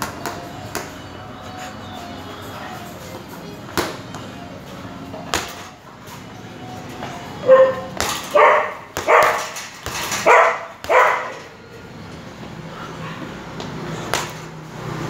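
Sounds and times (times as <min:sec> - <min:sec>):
dog barking: 0:07.4 - 0:09.6, 0:10.2 - 0:11.5.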